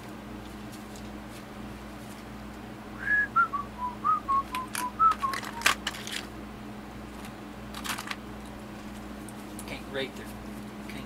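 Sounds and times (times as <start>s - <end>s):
man whistling a tune: 3.0s - 5.7s
clicks of small items handled: 4.5s - 6.3s, 7.2s - 8.6s.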